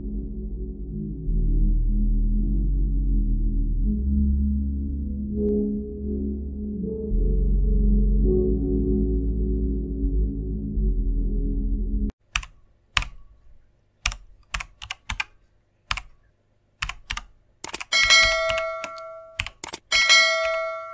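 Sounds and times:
low background music: 0.0s - 12.1s
sharp typing-like clicks: 12.2s - 16.2s, 16.8s - 20.6s
notification bell ding: 17.9s - 19.4s, 20.0s - 20.9s.

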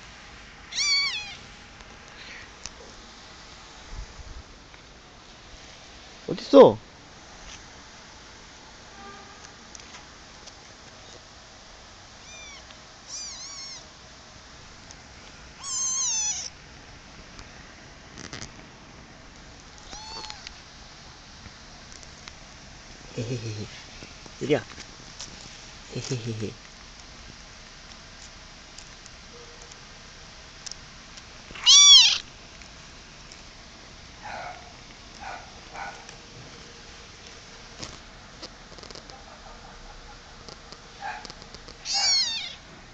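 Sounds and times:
kitten meowing: 0.7s - 1.4s, 12.2s - 13.9s, 15.6s - 16.6s, 19.8s - 20.6s, 31.5s - 32.2s, 41.8s - 42.6s.

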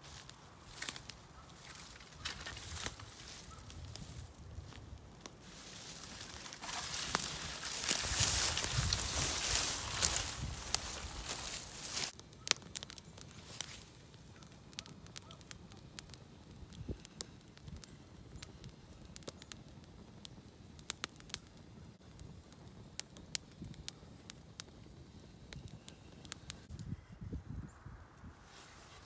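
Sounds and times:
campfire crackling and popping: 0.0s - 26.9s
rustling: 5.4s - 12.2s.

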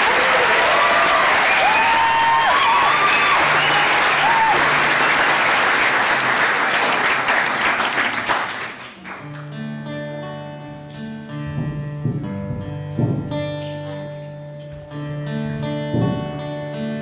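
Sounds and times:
audience applauding: 0.0s - 9.5s
acoustic guitar notes: 9.1s - 17.0s.

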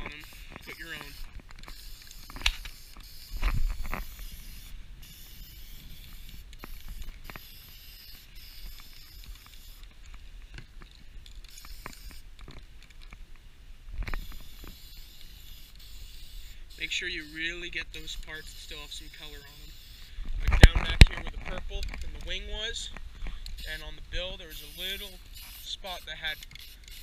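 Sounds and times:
spray paint can hissing: 0.0s - 9.9s, 11.4s - 12.3s, 14.1s - 20.1s, 23.5s - 27.0s.

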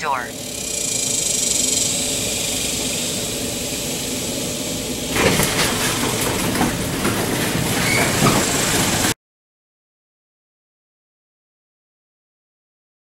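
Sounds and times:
garage door opener humming: 0.3s - 9.2s
garage door rattling in tracks: 0.4s - 9.2s.

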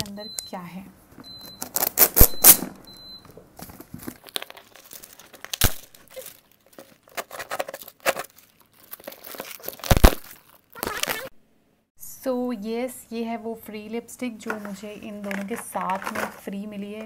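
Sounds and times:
plastic wrapping crinkling: 1.6s - 2.3s, 3.6s - 11.3s
cardboard box tearing: 6.2s - 11.3s.

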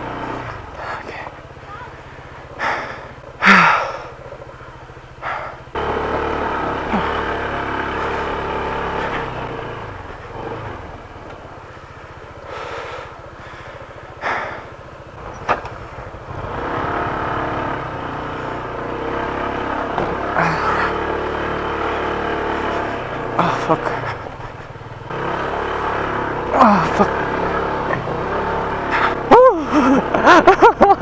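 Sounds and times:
scooter engine under load: 0.0s - 31.0s
sharp knocks: 19.9s - 20.3s.

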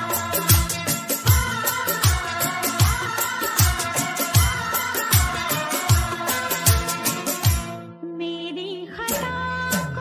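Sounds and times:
heavy bass drum beats: 0.1s - 7.7s.

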